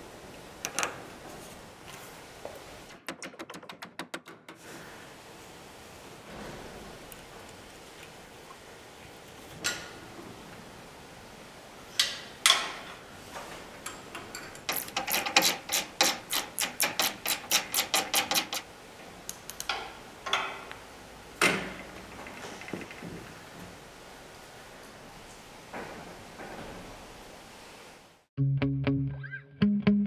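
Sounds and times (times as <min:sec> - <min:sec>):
wrench clicking on metal bolts: 0:13.8 - 0:18.6.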